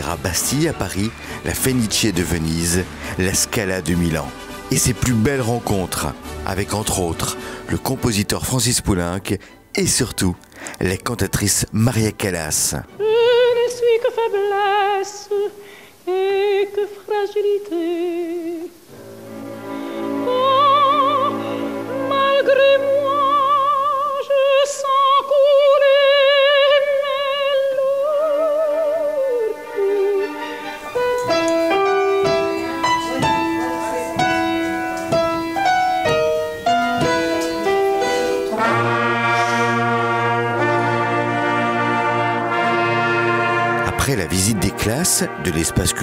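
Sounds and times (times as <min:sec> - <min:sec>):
brass band playing: 0:00.0 - 0:08.4, 0:18.9 - 0:20.6, 0:30.2 - 0:46.0
orchestral accompaniment: 0:00.0 - 0:13.9, 0:18.9 - 0:24.3, 0:28.6 - 0:46.0
soprano singing operatically: 0:12.9 - 0:18.9, 0:19.6 - 0:39.1.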